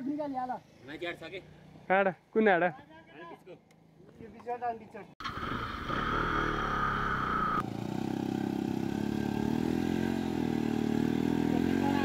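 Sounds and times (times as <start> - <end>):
motorcycle engines at low revs: 5.2 - 12.0.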